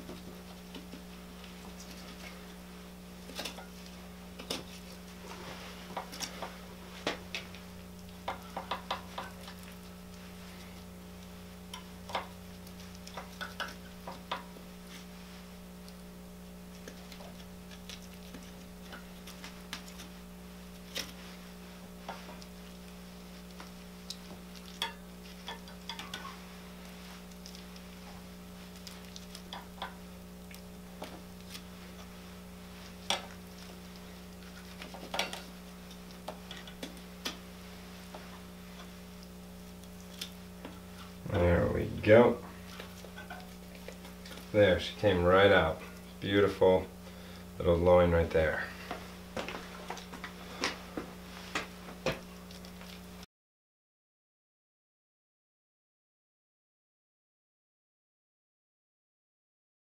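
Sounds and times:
steady low hum: 0.0 - 53.3.

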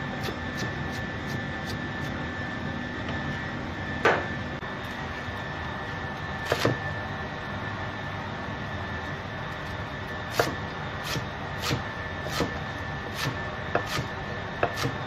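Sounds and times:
steady hum: 0.0 - 15.0
knife chopping on cutting board: 6.5 - 6.8, 10.3 - 12.6, 13.2 - 15.0.

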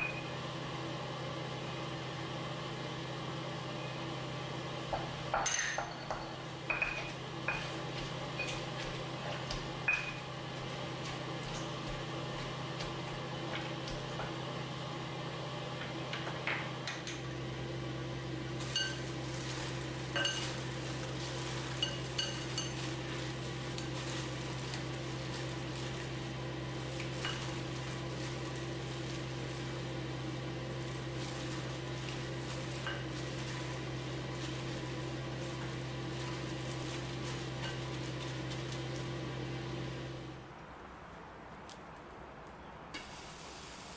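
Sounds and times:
clinks against glass bowl: 5.4 - 7.1.

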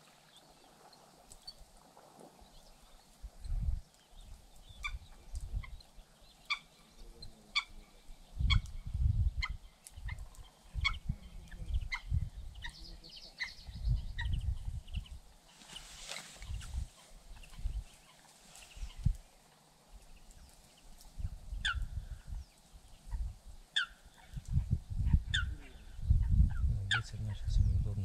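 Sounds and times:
bird calling: 21.6 - 22.3, 23.0 - 24.4
bird warbling call: 23.1 - 24.4, 25.1 - 26.0.

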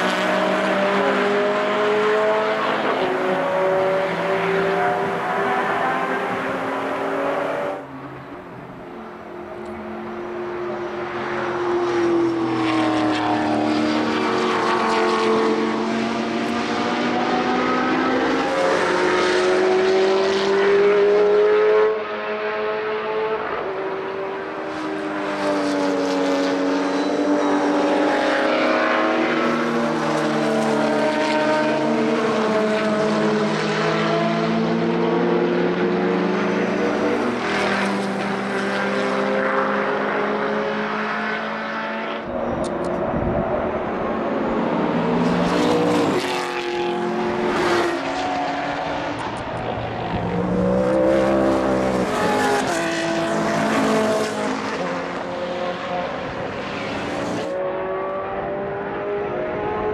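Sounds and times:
racing car engines passing: 0.0 - 59.9
wind buffeting microphone: 42.3 - 44.0.

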